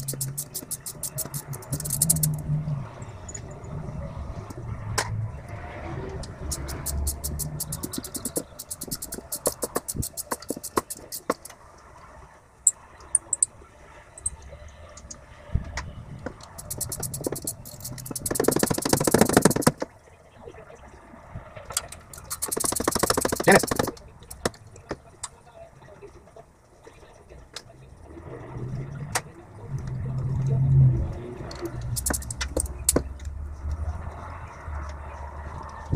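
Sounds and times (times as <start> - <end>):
socket ratchet clicking: 0.0 - 2.4, 6.5 - 11.5, 16.6 - 19.8, 22.1 - 24.5, 31.9 - 33.0.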